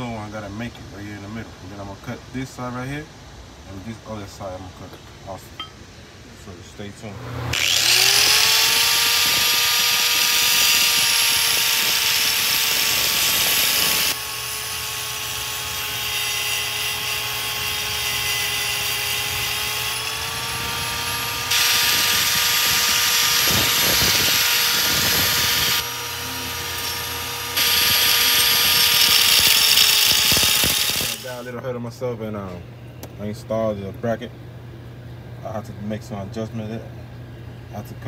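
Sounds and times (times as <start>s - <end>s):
rotary cutting tool whining: 7.4s - 31.4s
grinding hiss on metal: 7.5s - 31.4s.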